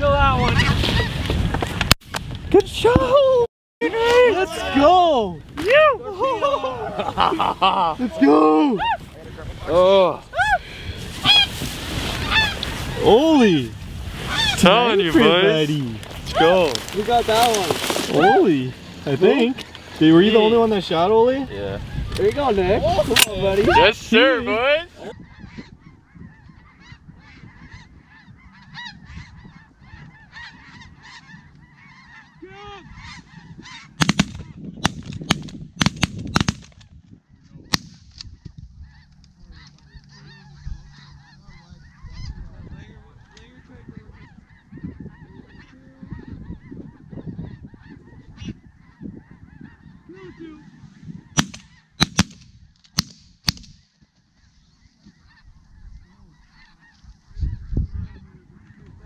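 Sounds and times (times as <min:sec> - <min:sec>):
geese honking: 0:10.6 - 0:13.6, 0:14.2 - 0:15.6, 0:16.3 - 0:34.6, 0:37.8 - 0:52.0, 0:54.1 - 0:59.0
shotgun blasts: 0:34.0 - 0:36.7, 0:51.4 - 0:53.8.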